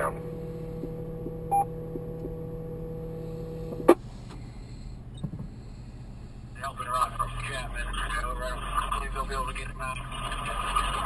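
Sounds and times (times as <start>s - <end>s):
radio carrier hum and tone: 0.0s - 2.4s, 6.4s - 11.0s
short beep: 1.5s - 1.7s
faint radio hiss: 6.5s - 11.0s.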